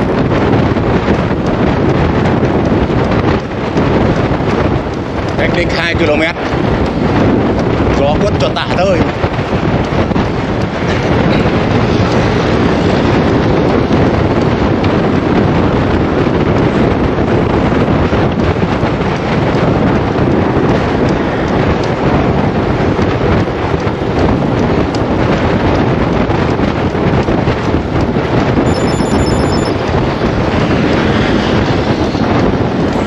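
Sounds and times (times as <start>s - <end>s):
wind rushing over microphone: 0.0s - 33.0s.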